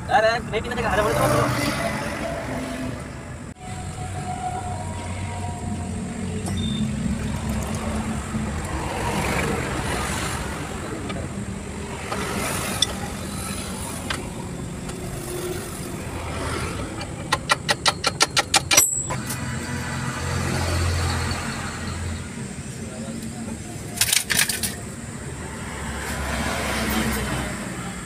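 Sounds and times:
vehicle engine idling: 3.1s - 20.2s
rapid rattling clicks: 16.9s - 19.1s.

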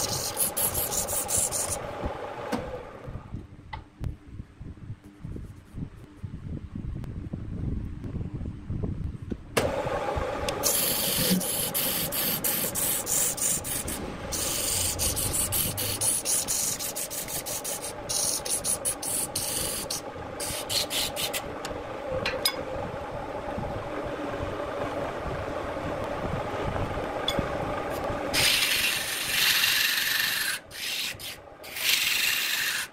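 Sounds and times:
tool scraping wood on lathe: 0.0s - 1.8s, 10.6s - 21.5s, 27.9s - 32.9s
lathe motor running: 0.0s - 3.3s, 9.6s - 32.9s.

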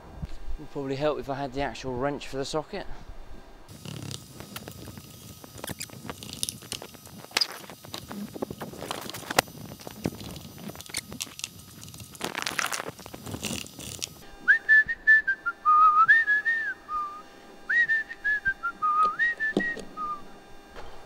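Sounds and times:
person whistling a tune: 14.5s - 20.2s.

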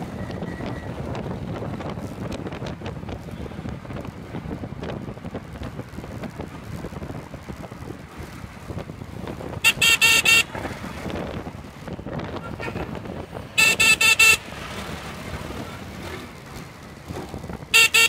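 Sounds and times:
road traffic rumble: 0.0s - 18.0s
vehicle horn toots: 9.6s - 10.5s, 13.6s - 14.5s, 17.7s - 18.0s.

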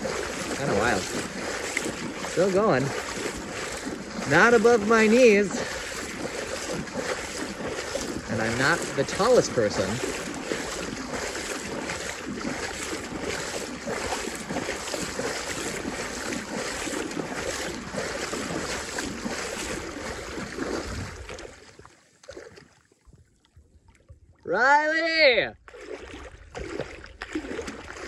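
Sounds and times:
wind buffeting microphone: 0.0s - 21.8s
water sloshing around legs: 0.0s - 24.9s, 25.6s - 28.0s.

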